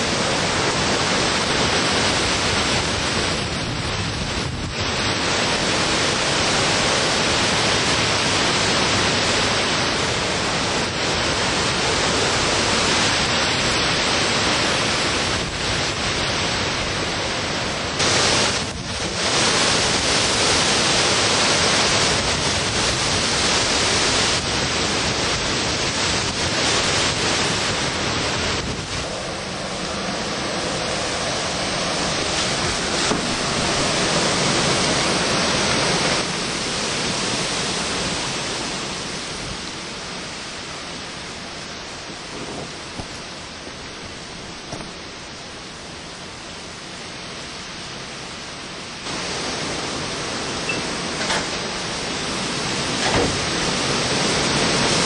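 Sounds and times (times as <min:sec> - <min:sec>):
heavy driving rain: 0:00.0 - 0:55.0
strong wind: 0:00.0 - 0:55.0.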